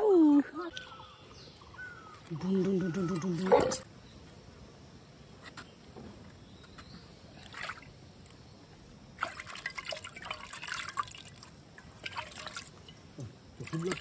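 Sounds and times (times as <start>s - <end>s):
water trickling and splashing: 7.3s - 14.0s.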